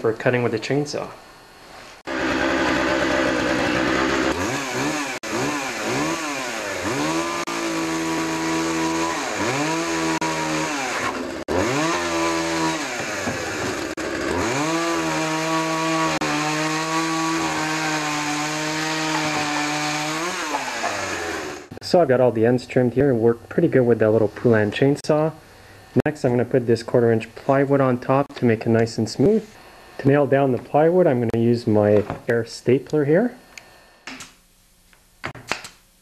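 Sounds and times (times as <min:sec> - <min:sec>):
chainsaw cutting wood: 0:02.1 - 0:21.8.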